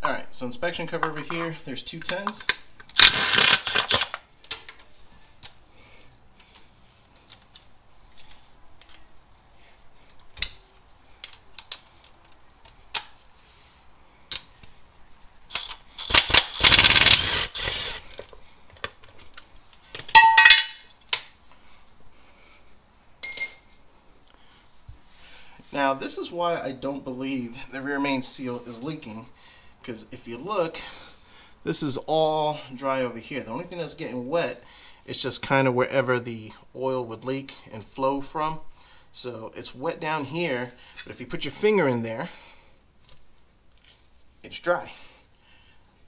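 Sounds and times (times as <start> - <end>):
ratchet wrench clicking: 15.5 - 18.0.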